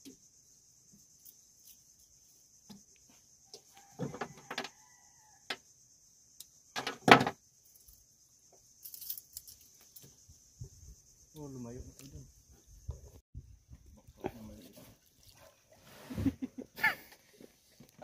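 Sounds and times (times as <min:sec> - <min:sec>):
high insect drone: 0:00.0 - 0:13.2.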